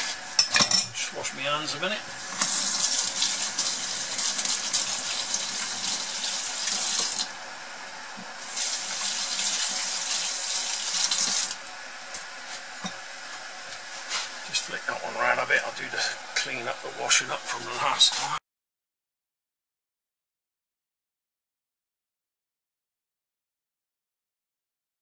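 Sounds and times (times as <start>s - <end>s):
tap water running over hands: 2.1s - 7.3s, 8.2s - 11.6s.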